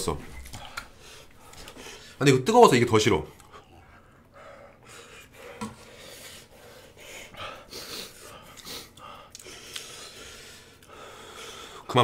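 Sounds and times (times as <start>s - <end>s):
man breathing heavily: 3.5s - 11.9s.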